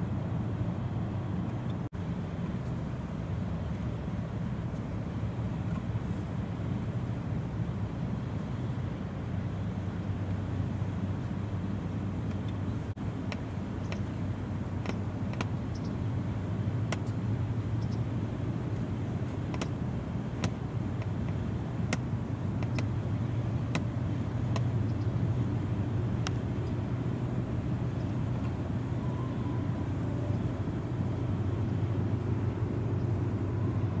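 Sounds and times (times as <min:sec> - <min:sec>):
diesel engine drone: 0:00.0 - 0:34.0
faint sharp clicks: 0:13.3 - 0:14.1, 0:14.8 - 0:16.0, 0:20.4 - 0:22.9.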